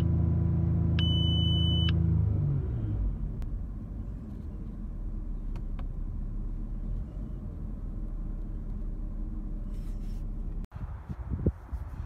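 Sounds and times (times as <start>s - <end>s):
car engine idling: 3.1s - 10.7s.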